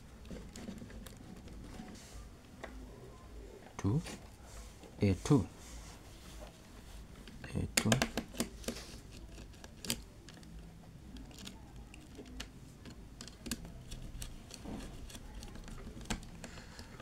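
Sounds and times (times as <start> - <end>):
wires being handled: 0.0 - 2.8, 3.6 - 17.0
screwdriver clicks and taps: 7.8 - 10.5.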